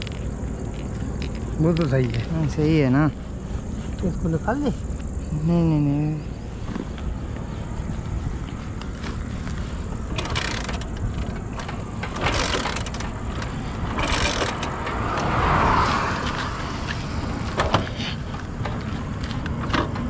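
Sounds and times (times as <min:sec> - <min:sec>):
low road rumble: 0:00.0 - 0:20.0
vehicle passing: 0:00.0 - 0:20.0.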